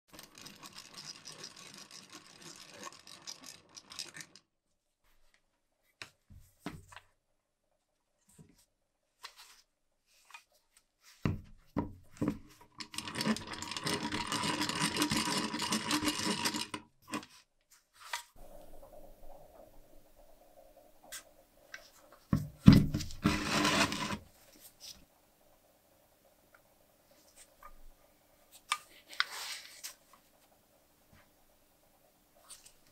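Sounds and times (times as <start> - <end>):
hand-crank pencil sharpener grinding: 0.1 - 4.4, 12.8 - 17.3, 23.1 - 24.3.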